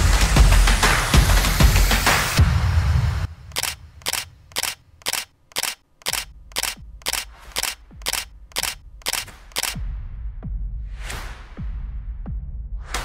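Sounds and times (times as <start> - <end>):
sharp repeating clicks: 3.5 - 9.8.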